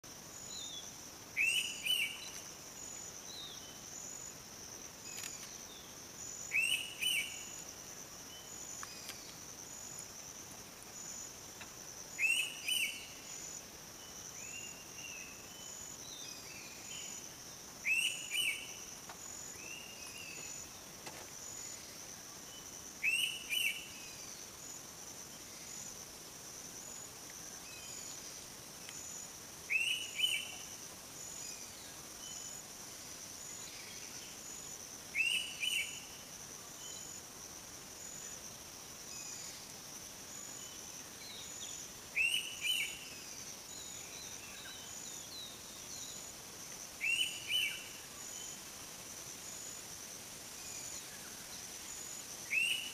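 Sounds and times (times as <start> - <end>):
insects trilling: 0.0 - 52.9.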